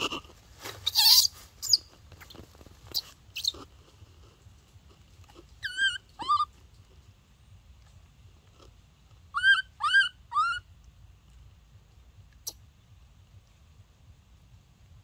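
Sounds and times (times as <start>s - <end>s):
scuffs in leaves and dirt: 0.0s - 3.4s
rustling in leaves: 0.0s - 3.6s
baby monkey calls: 0.0s - 3.7s, 5.3s - 6.6s, 9.3s - 10.7s.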